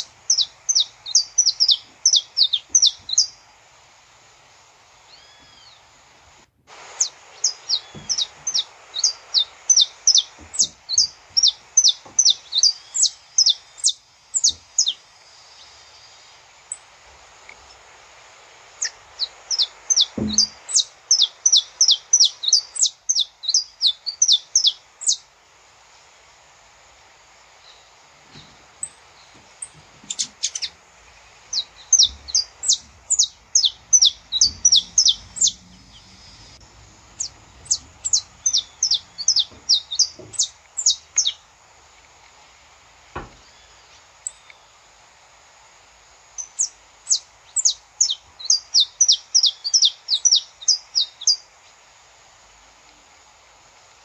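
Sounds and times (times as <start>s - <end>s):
finch chipping song: 0.0s - 3.6s, 6.9s - 15.8s, 18.8s - 25.3s, 27.7s - 41.6s, 46.3s - 51.5s.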